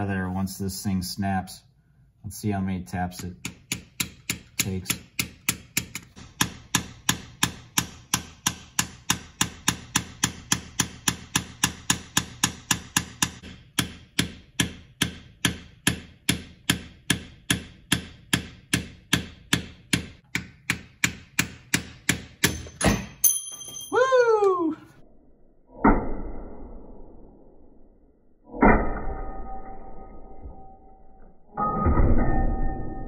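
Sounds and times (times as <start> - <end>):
hammer tapping on screwdriver: 3.2 - 22.8.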